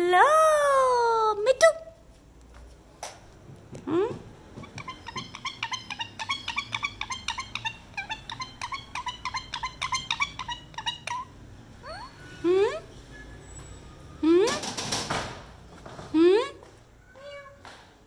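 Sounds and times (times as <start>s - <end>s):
parakeet squawking and chattering: 4.5s - 12.9s.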